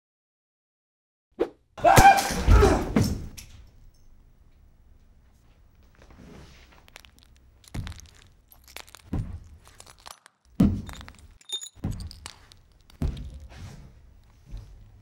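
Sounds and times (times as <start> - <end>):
heavy thuds: 10.5 - 15.0.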